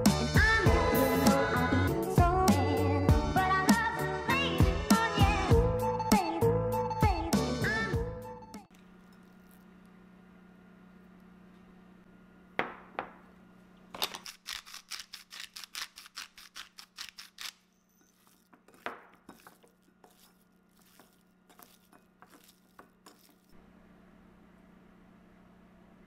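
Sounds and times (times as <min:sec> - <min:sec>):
pepper grinder clicking: 0:14.0 - 0:23.3
hands rubbing seasoning into meat: 0:18.1 - 0:23.5.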